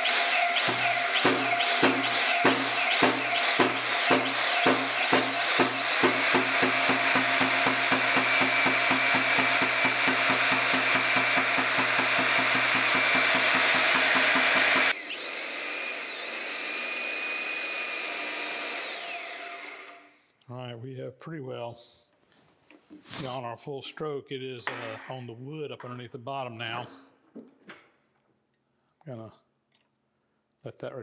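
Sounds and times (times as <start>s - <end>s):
hydraulic pump pulsing: 0.0s - 20.0s
hydraulic pump whine: 0.0s - 20.1s.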